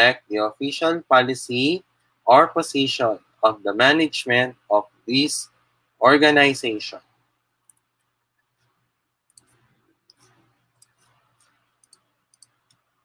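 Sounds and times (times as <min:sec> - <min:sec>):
computer mouse clicks: 0:07.6 - 0:12.9.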